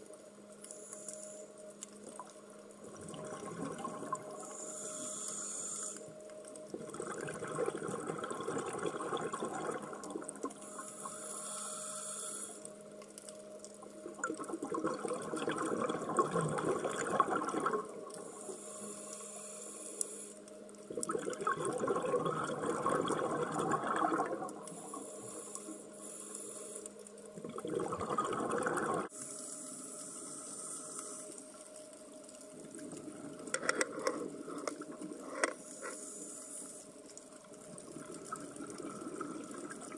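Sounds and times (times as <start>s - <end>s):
gurgling exhaled bubbles: 2.8s - 4.4s, 6.7s - 10.6s, 14.0s - 18.2s, 20.9s - 24.7s, 27.4s - 29.1s, 37.6s - 39.9s
regulator inhalation hiss: 4.4s - 6.1s, 10.6s - 12.6s, 18.2s - 20.5s, 24.7s - 27.0s, 29.1s - 31.4s, 35.6s - 37.0s.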